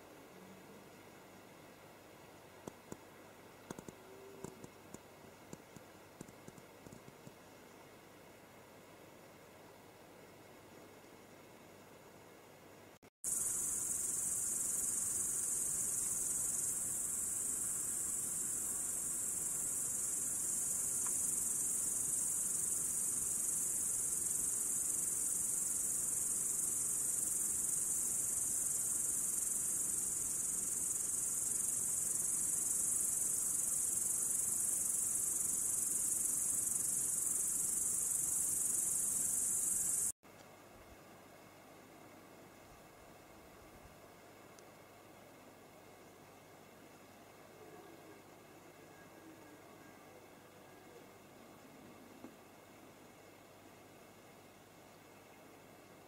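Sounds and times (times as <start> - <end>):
crickets chirping: 13.2 - 40.2.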